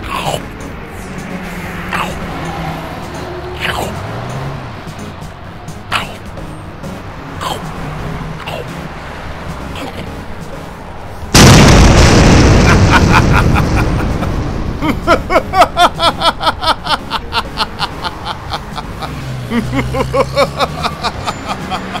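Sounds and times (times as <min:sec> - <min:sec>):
cartoon explosion blast: 0:11.3 - 0:15.1.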